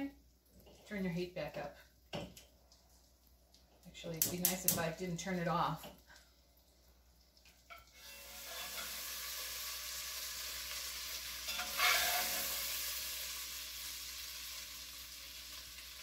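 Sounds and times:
beef sizzling in butter: 0:06.7 - 0:16.0.

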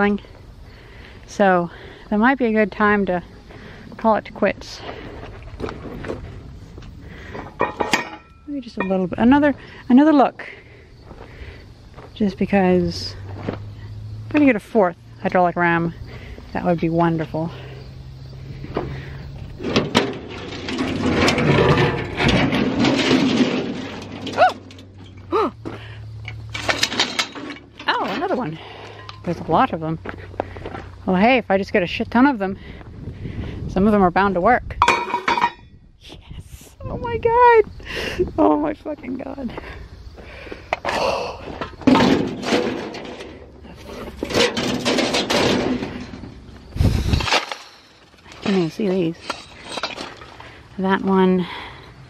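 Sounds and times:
scrap metal clattering and scraping: 0:03.6 - 0:09.6, 0:18.5 - 0:30.9, 0:34.8 - 0:35.7, 0:41.5 - 0:50.7
metal rattling: 0:07.1 - 0:09.4, 0:18.7 - 0:25.4, 0:26.2 - 0:29.5, 0:34.8 - 0:35.7, 0:41.6 - 0:50.6.

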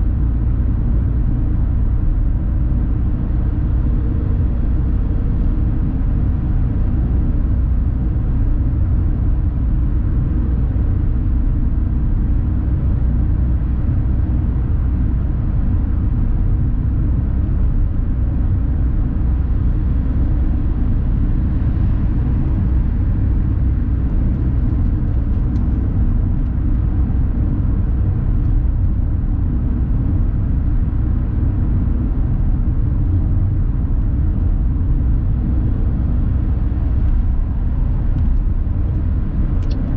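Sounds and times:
car cabin road rumble: 0:00.0 - 0:39.9.

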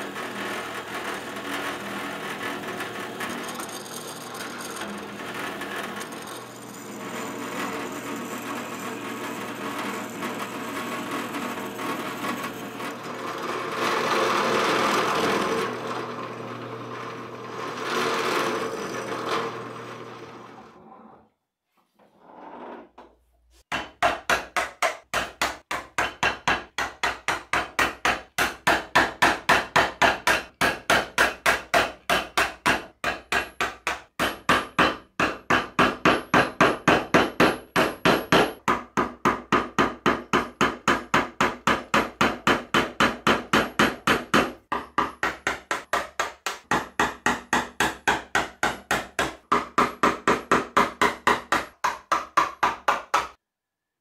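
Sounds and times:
mallet striking chisel: 0:23.7 - 0:53.4.

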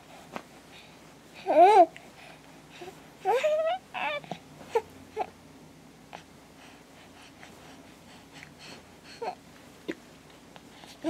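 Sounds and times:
infant cooing and grunting: 0:03.2 - 0:05.3.

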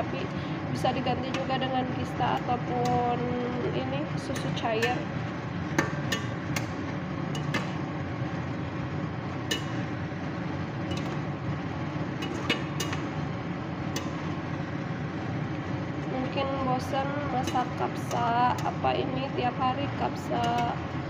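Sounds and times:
steady low hum: 0:00.0 - 0:21.0
spoon clinking against saucepan: 0:07.4 - 0:07.8, 0:09.5 - 0:09.8, 0:10.9 - 0:11.2, 0:12.2 - 0:13.0.

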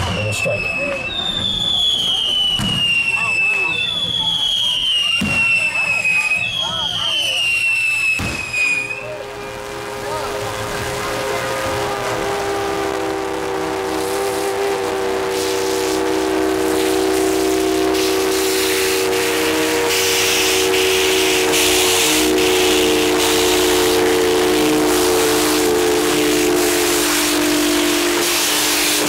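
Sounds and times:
steam exhaust chuffs: 0:00.0 - 0:29.0
steam locomotive whistle: 0:00.0 - 0:29.0.

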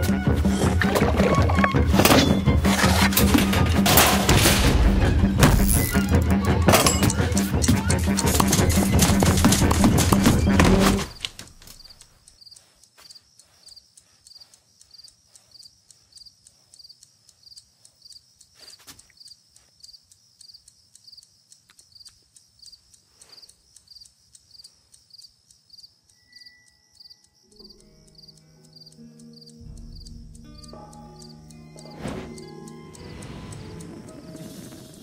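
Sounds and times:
music: 0:00.0 - 0:11.3, 0:26.3 - 0:35.0
cricket chirping: 0:10.4 - 0:35.0
faint soft ticks: 0:11.8 - 0:35.0.

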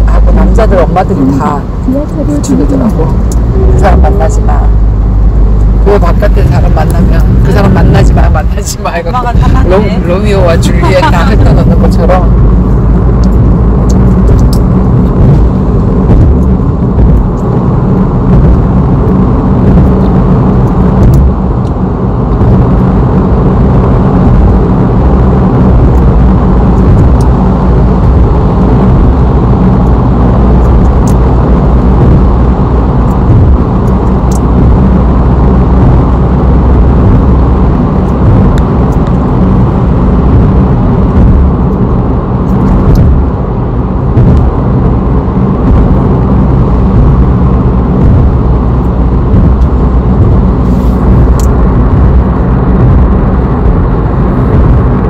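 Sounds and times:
low-pitched rumbling: 0:00.0 - 0:55.0.

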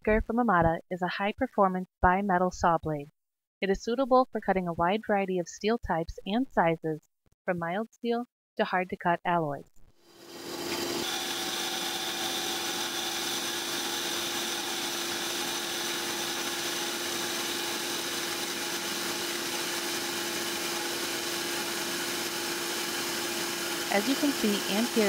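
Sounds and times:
band saw cutting steel: 0:10.0 - 0:25.0.

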